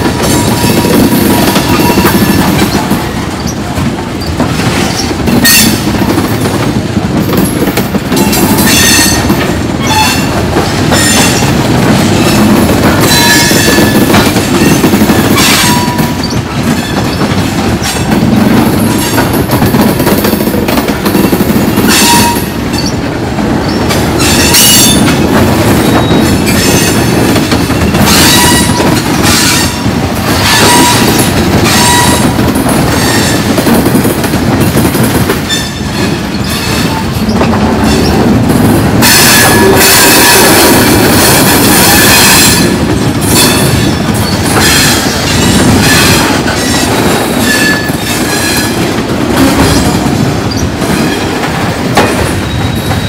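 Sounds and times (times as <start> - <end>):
steel wheels rumbling on rail: 0.0 - 53.0.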